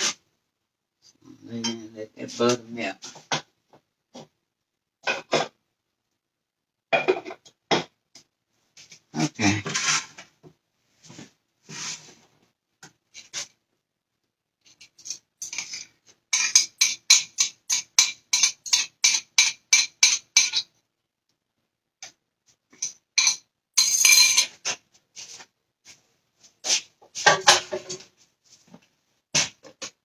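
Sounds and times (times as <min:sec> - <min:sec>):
scrape and clatter: 0:08.8 - 0:10.3, 0:11.0 - 0:12.3, 0:13.1 - 0:13.6, 0:14.7 - 0:20.6, 0:22.8 - 0:28.8.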